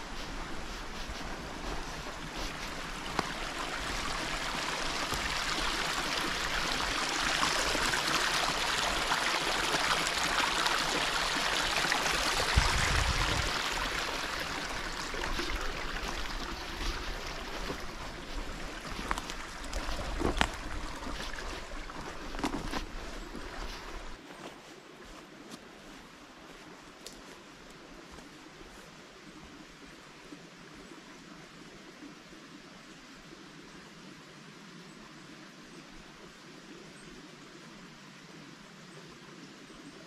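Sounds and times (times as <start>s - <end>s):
footsteps on path: 0.0s - 9.0s, 11.6s - 28.9s
stream rushing over stones: 0.0s - 24.2s.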